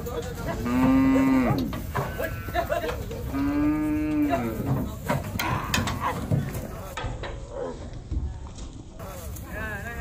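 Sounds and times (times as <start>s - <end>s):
cattle mooing: 0.6s - 2.7s, 3.3s - 4.8s, 5.4s - 6.2s.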